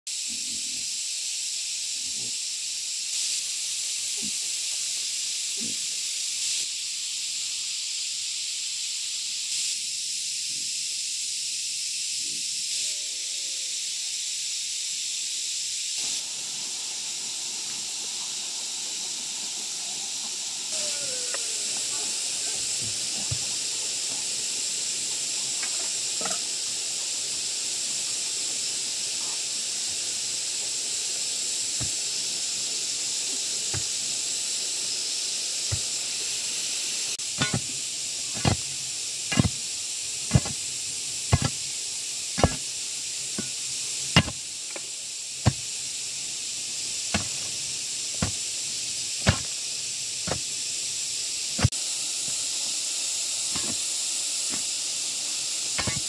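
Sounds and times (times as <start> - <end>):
high-pitched insect chorus: 0.1 - 56.0
short calls: 19.8 - 23.7.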